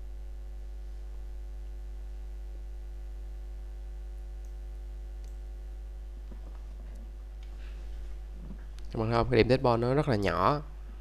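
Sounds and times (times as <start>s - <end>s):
low electrical hum: 0.0s - 11.0s
faint high ticks: 4.2s - 4.6s, 5.2s - 5.4s.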